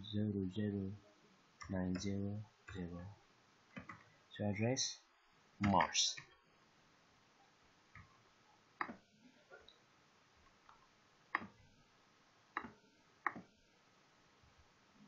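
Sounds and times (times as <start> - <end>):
computer mouse clicking: 8.8 - 9.0, 10.7 - 11.6, 12.6 - 13.5.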